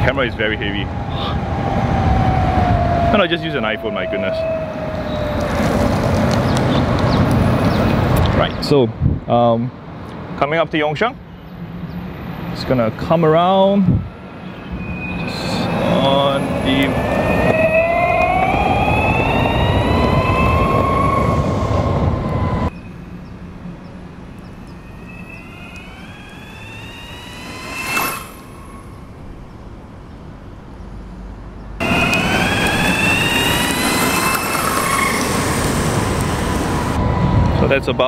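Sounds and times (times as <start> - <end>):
skateboard wheels rumbling: 5.0 - 8.0
electric motor whine: 22.2 - 29.6, 31.8 - 37.0.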